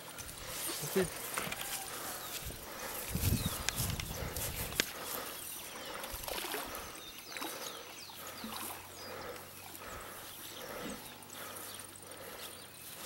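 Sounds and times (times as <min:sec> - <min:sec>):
water sloshing and splashing: 0:05.8 - 0:09.8.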